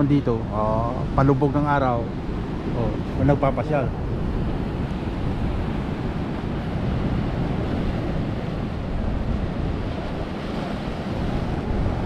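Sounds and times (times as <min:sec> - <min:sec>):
surf washing against rocks: 0:00.0 - 0:12.0
wind rumbling on microphone: 0:00.0 - 0:12.0.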